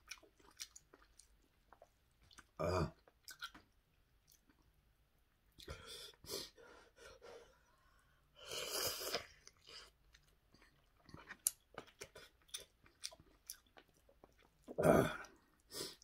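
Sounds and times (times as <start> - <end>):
chewing with clicks and smacks: 0.0 - 4.8, 9.0 - 16.0
person slurping noodles: 8.4 - 9.4.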